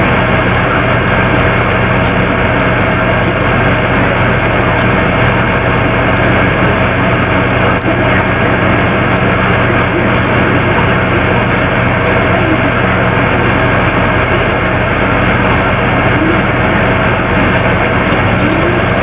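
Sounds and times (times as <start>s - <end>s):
loud droning noise: 0.0s - 19.0s
low electrical hum: 0.0s - 19.0s.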